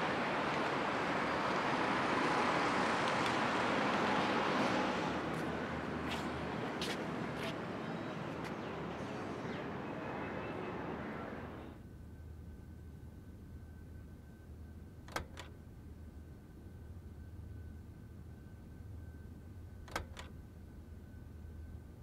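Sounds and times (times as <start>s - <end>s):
cars passing: 0.0s - 11.7s.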